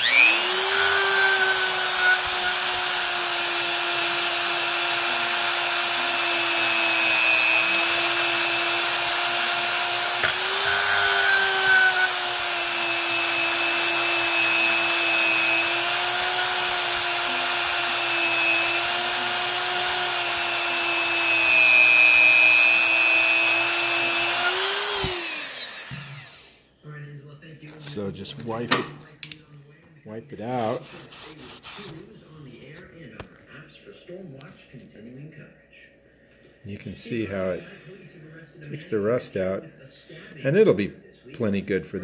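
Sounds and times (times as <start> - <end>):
rotary tool grinding metal: 0.0 - 26.6.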